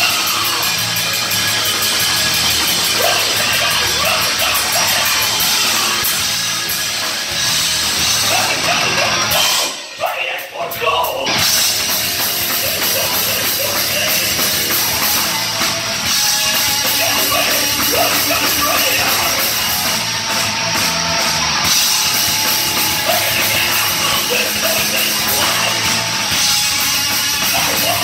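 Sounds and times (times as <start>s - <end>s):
vocalist singing: 0.0s - 0.9s, 2.8s - 6.1s, 8.1s - 15.5s, 16.6s - 20.0s, 22.7s - 26.5s, 27.2s - 28.0s
bass guitar: 0.0s - 28.0s
distorted electric guitars: 0.0s - 28.0s
pounding drum kit: 0.0s - 28.0s.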